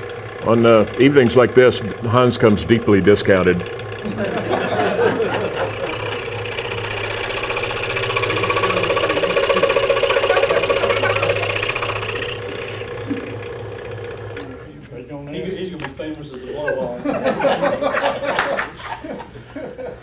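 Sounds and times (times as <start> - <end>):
scroll saw cutting wood: 0.0 - 14.6.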